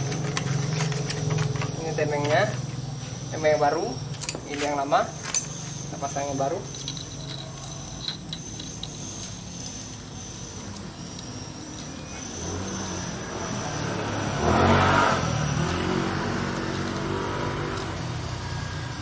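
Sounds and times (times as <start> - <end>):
vehicle engine running: 0.0 - 19.0
metallic clicks of engine parts: 4.1 - 12.3.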